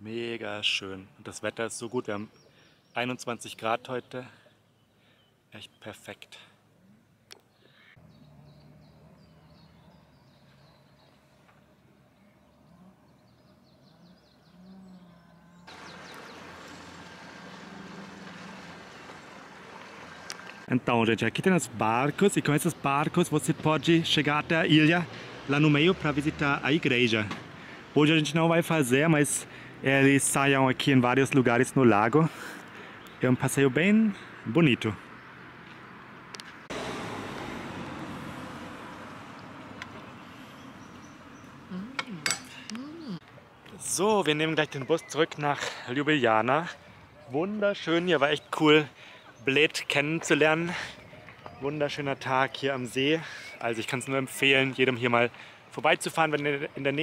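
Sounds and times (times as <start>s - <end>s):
bird chirps: 7.2s - 16.9s, 40.0s - 45.9s
rushing road traffic: 7.3s - 57.0s.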